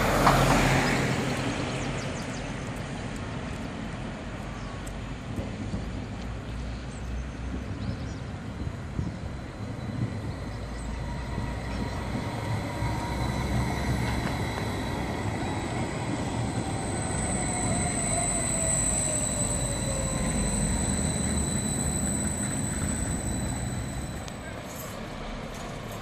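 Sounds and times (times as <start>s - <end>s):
tram wheels rumbling on rail: 0.0s - 26.0s
electric motor whine: 8.9s - 24.4s
high whistles: 8.9s - 25.2s.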